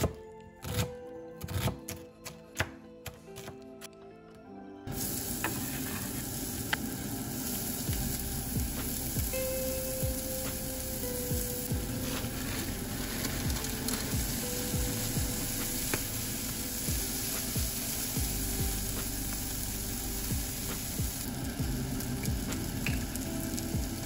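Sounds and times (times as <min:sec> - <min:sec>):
vegetables sizzling in frying pan: 0:04.9 - 0:24.0.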